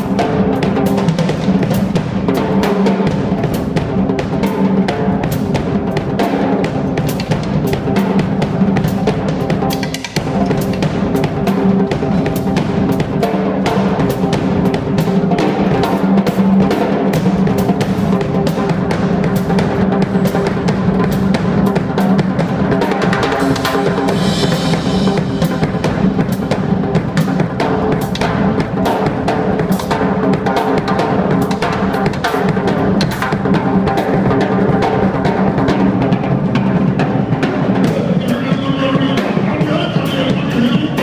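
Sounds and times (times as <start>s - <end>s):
drum kit played fast: 0.0s - 41.0s
vocalist singing: 37.8s - 41.0s.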